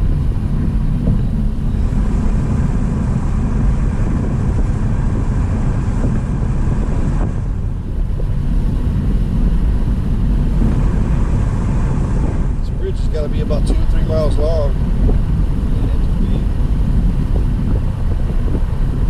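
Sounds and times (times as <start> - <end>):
tyre and wind rumble in car: 0.0 - 19.0.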